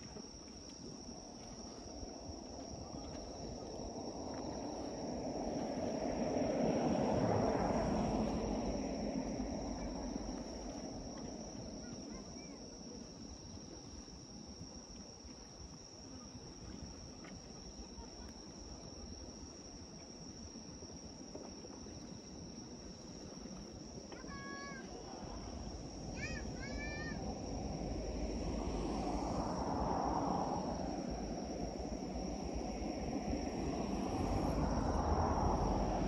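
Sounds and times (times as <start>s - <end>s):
insects chirring: 0.0s - 36.0s
vehicle passing: 27.2s - 36.0s.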